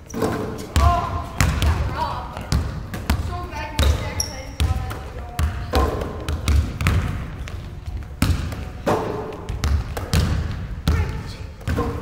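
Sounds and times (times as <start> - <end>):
basketballs bouncing on wooden floor: 0.0 - 12.0.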